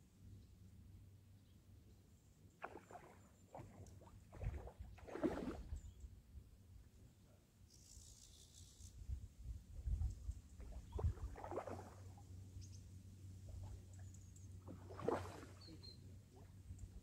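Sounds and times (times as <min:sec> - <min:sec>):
fish splashing at water surface: 0:02.6 - 0:05.7, 0:11.0 - 0:12.0, 0:14.7 - 0:15.7
faint high bird chirps: 0:15.5 - 0:16.2.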